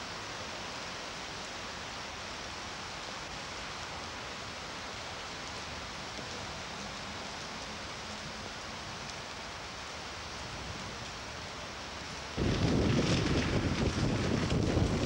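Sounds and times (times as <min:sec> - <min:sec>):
rain on stone paving: 0:00.0 - 0:15.0.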